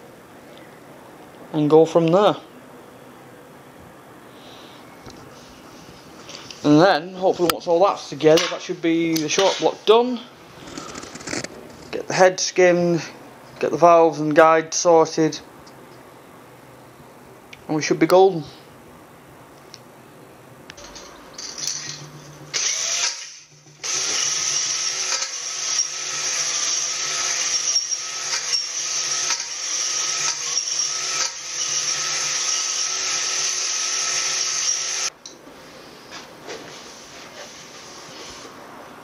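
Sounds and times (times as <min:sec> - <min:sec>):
cordless drill running: 0:22.5 - 0:35.1.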